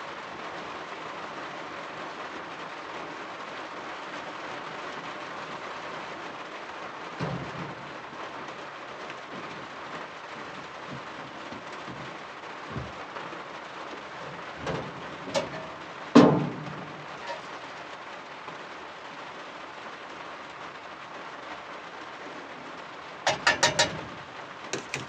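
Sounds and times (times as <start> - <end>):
rain hiss: 0.0 - 25.0
metal knocks and clanks: 7.2 - 8.5, 10.4 - 13.4, 14.2 - 17.6, 23.3 - 25.0.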